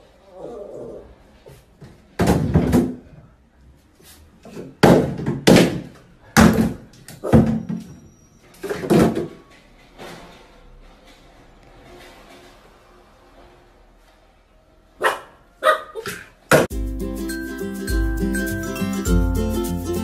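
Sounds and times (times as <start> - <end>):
plastic bottles knocking into tub: 2.2 - 3.1, 4.8 - 7.8.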